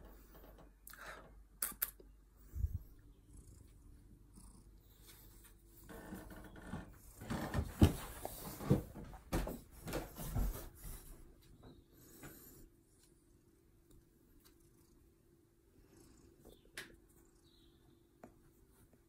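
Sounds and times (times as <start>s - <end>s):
cat purring: 2.5s - 7.2s, 12.1s - 17.8s.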